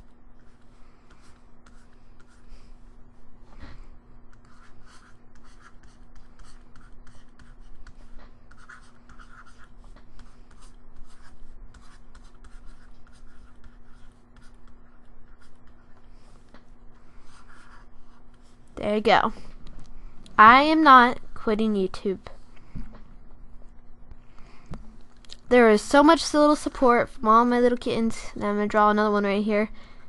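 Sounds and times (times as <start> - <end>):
stylus scratching drawing tablet: 0.0 - 3.2, 4.0 - 19.3
faint electrical hum: 0.0 - 30.0.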